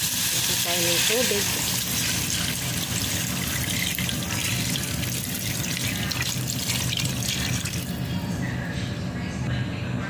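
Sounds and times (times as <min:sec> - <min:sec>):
water pouring into metal pot: 0:00.0 - 0:08.0.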